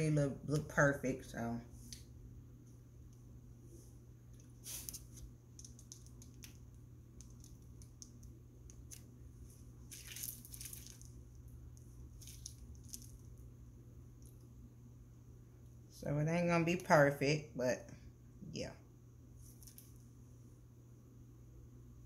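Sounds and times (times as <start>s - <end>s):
low steady hum: 0.0s - 22.0s
plastic bag crinkling: 4.6s - 13.4s.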